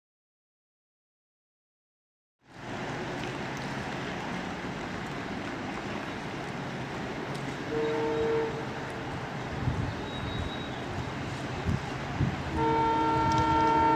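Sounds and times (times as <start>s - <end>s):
trains rumbling and hissing: 2.5s - 13.9s
train horn: 7.7s - 8.8s, 12.5s - 13.9s.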